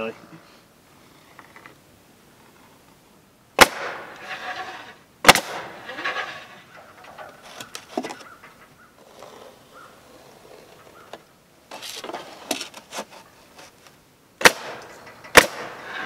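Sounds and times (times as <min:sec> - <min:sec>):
pneumatic stapler shots: 0:05.2 - 0:05.8, 0:14.4 - 0:16.0.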